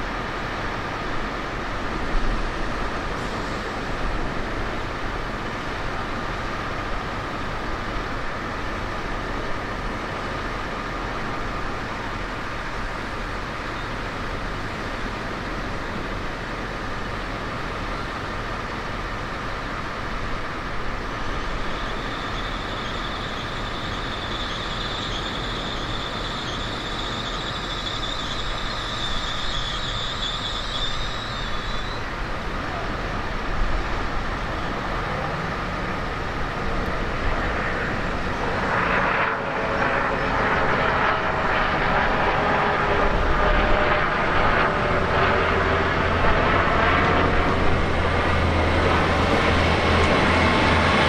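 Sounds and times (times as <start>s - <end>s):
train rolling with whine: 0.0s - 51.0s
high-pitched squeal: 20.9s - 33.0s.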